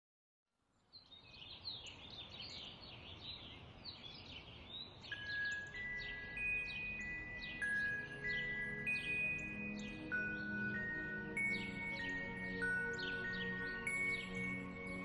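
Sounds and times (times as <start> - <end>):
small birds chirping: 0.7 - 15.0
soft chime-like music: 5.0 - 15.0.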